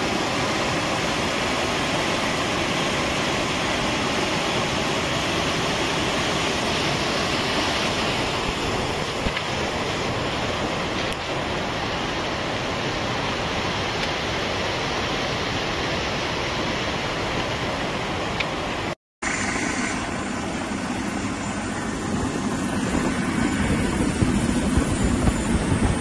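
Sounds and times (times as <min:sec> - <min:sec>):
floodwater rushing: 0:00.0 - 0:26.0
deep heavy rumble: 0:19.3 - 0:26.0.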